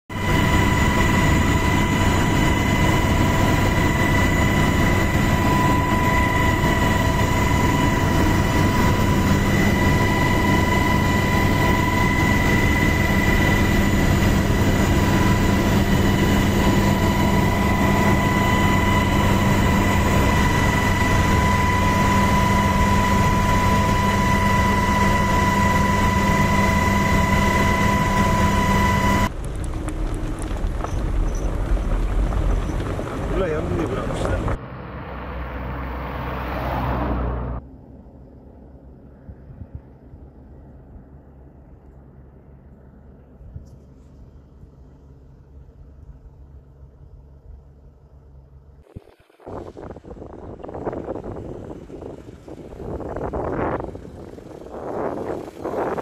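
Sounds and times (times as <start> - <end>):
helicopter rotor rushing noise: 0.1 - 34.6, 48.7 - 56.0
high turbine whine: 0.1 - 56.0.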